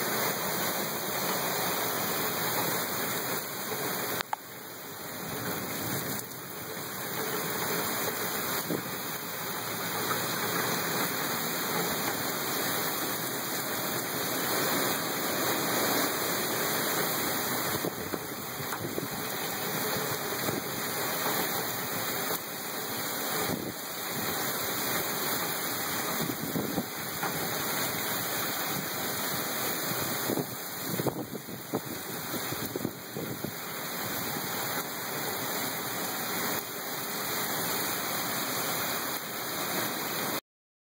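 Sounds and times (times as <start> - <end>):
heavy wind-driven rain: 0.0 - 40.4
strong wind gusts: 10.5 - 20.9, 23.3 - 24.4, 26.0 - 34.6.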